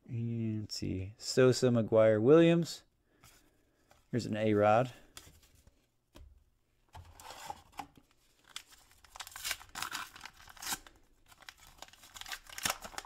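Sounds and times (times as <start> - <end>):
wrapper tearing and crinkling: 8.4 - 13.0.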